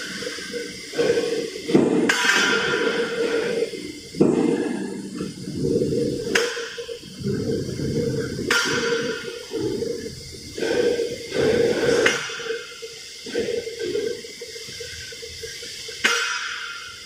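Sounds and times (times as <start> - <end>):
rushing hiss and rumble: 0.0 - 17.0
steel plates clanking: 6.2 - 12.7.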